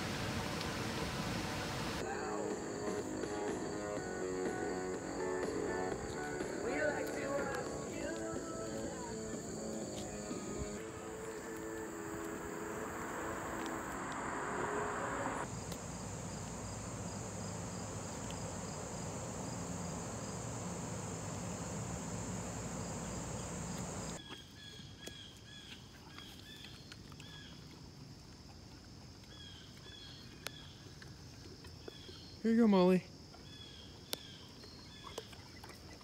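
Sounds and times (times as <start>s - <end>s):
cricket chirps: 1.6s - 36.0s
high-pitched insect drone: 8.2s - 24.2s.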